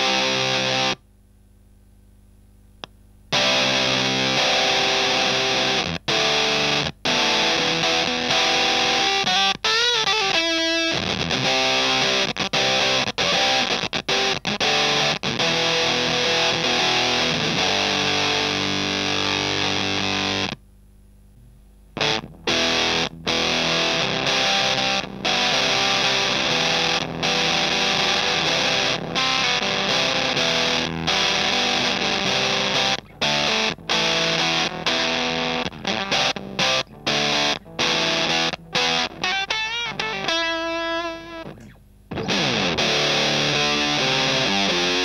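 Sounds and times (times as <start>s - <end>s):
fuzzed electric guitar: 0.0s - 1.1s, 2.8s - 45.0s
low hum: 20.6s - 22.4s.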